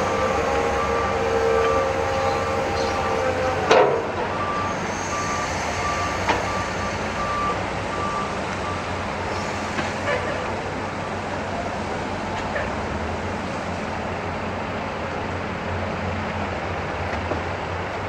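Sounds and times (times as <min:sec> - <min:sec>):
reversing alarm beeping: 0:00.0 - 0:09.1
heavy machinery engine hum: 0:00.0 - 0:18.0.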